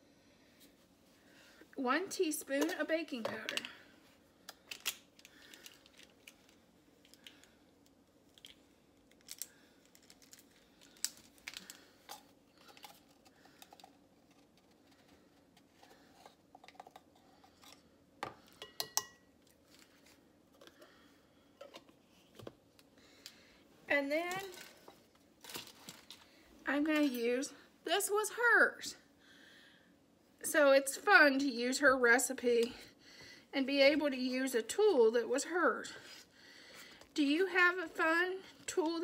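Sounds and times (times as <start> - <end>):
kitchen utensils clicking and tapping: 18.6 - 19.2.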